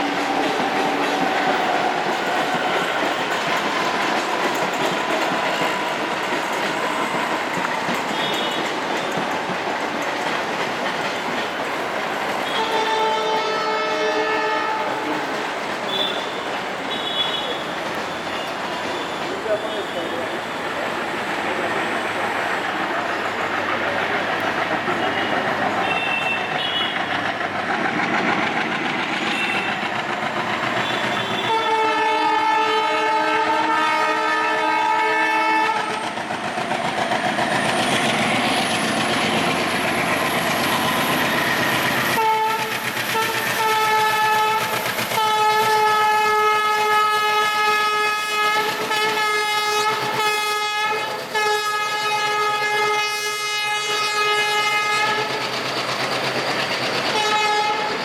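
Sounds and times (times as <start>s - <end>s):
train rumble and clatter: 0.0s - 58.0s
locomotive horn blasts: 12.4s - 15.3s, 25.0s - 27.1s, 30.8s - 36.0s, 42.2s - 55.4s, 57.1s - 57.9s.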